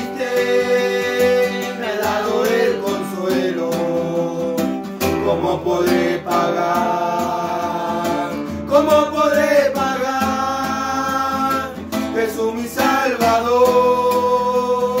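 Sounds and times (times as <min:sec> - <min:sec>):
men singing a praise song: 0:00.0 - 0:15.0
strummed acoustic guitars: 0:00.0 - 0:15.0.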